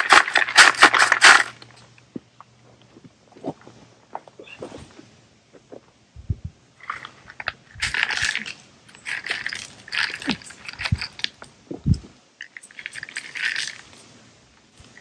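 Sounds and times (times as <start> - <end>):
dull low thuds: 5.0 - 6.6.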